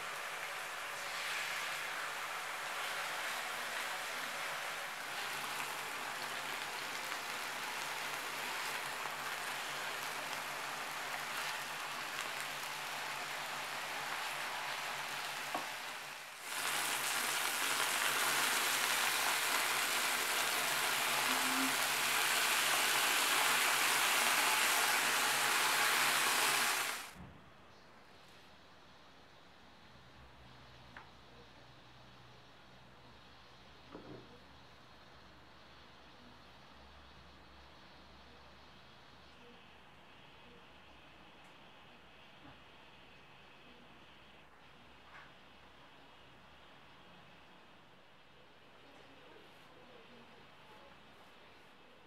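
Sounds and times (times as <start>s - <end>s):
chicken sizzling in frying pan: 0.0s - 27.2s.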